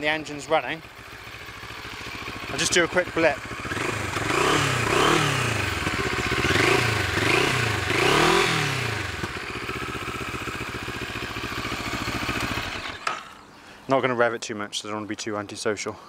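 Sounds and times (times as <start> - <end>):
motorcycle engine idling: 0.0 - 13.5
motorcycle engine revving: 0.6 - 13.4.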